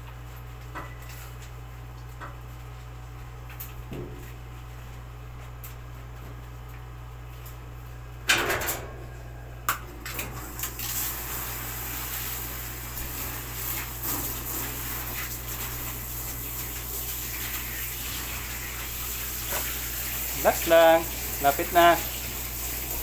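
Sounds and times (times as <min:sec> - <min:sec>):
steady low hum: 0:00.0 - 0:10.7
hose water spraying and splashing: 0:10.4 - 0:23.0.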